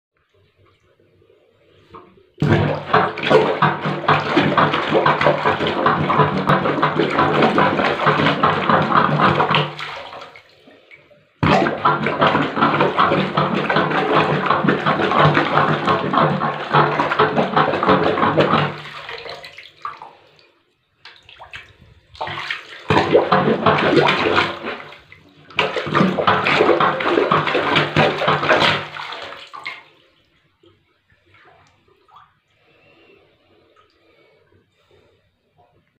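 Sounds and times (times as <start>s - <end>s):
plunger squelching water: 0.5s - 34.9s.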